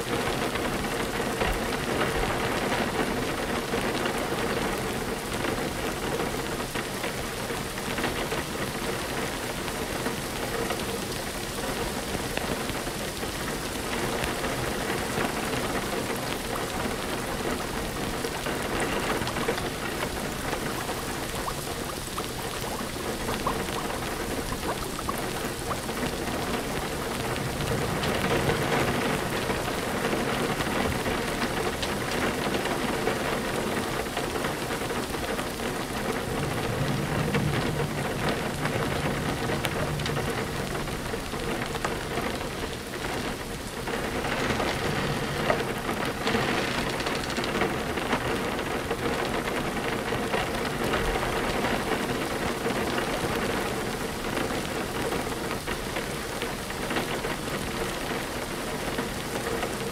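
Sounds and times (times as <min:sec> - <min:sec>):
heavy rain falling: 0:00.0 - 0:59.9
rumbles of thunder: 0:11.6 - 0:58.3.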